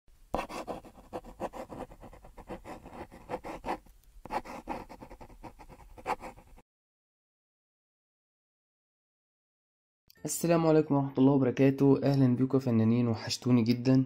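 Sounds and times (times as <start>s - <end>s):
pencil scratching on paper: 0.3s - 6.6s.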